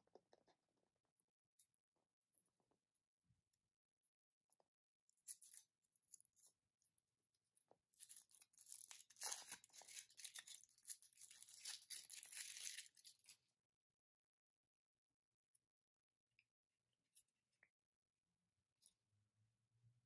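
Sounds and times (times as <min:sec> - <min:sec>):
foil wrapper crinkling and tearing: 0:08.0 - 0:13.4.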